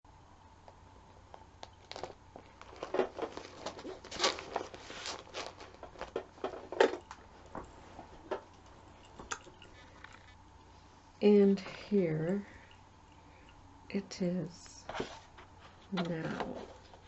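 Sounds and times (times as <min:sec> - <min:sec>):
paper rustling and shuffling: 0:01.7 - 0:08.5, 0:14.9 - 0:17.0.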